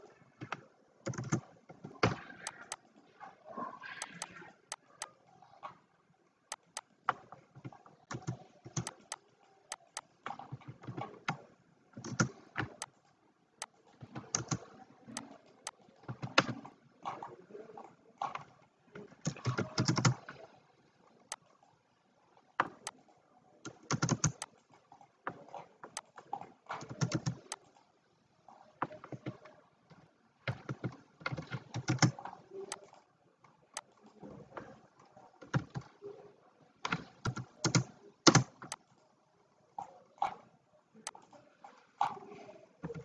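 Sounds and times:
keyboard typing: 0.3s - 3.0s, 3.8s - 5.8s, 6.5s - 13.0s, 13.6s - 17.4s, 18.2s - 20.6s, 22.6s - 27.9s, 28.5s - 33.0s, 33.8s - 36.2s, 36.8s - 38.9s, 42.0s - 43.0s
mouse clicks: 0.4s - 2.9s, 3.8s - 5.2s, 6.5s - 11.4s, 12.0s - 13.0s, 13.6s - 16.6s, 18.3s - 20.4s, 23.6s - 24.6s, 36.8s - 38.8s.

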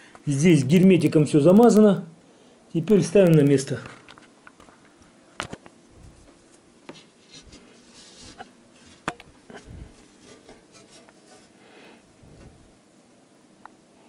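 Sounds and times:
hands rubbing cloth: 6.0s - 11.6s.

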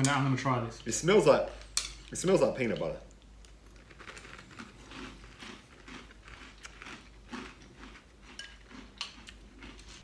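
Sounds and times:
person chewing crunchy cereal: 3.1s - 10.0s.

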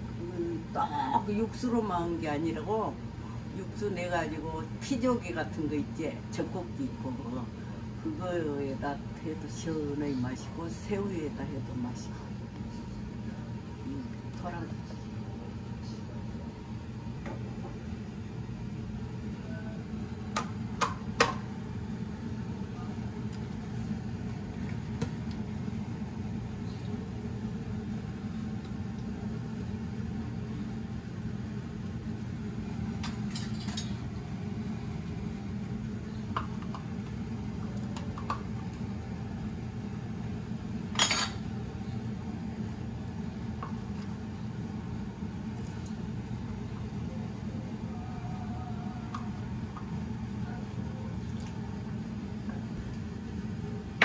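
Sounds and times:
steady low hum: 0.0s - 54.0s
dishes and utensils clinking: 33.0s - 34.0s.

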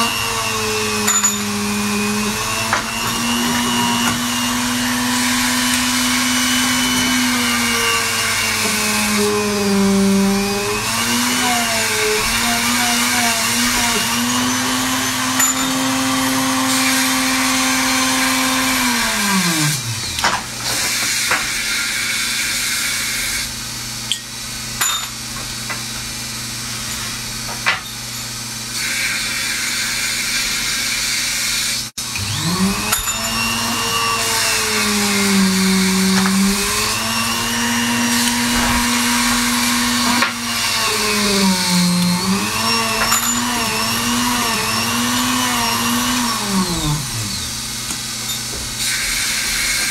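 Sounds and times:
small electric drill motor running: 0.0s - 20.2s, 28.8s - 47.8s.

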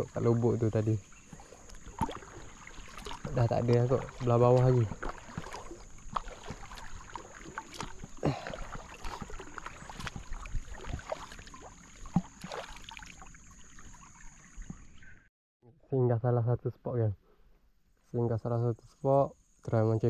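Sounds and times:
water splashes and drips: 0.0s - 15.0s
kayak paddle strokes in water: 0.0s - 15.1s.

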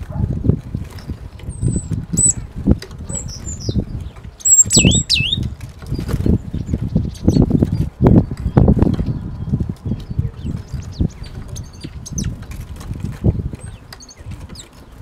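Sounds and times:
high bird calls dropping in pitch: 2.2s - 2.4s, 4.4s - 5.5s.

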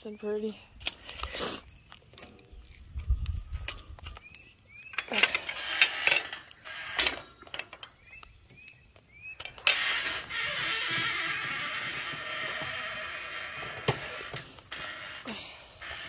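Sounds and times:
metal clinks and rattles: 4.9s - 8.1s
phone rubbing against metal gate: 5.0s - 8.0s.

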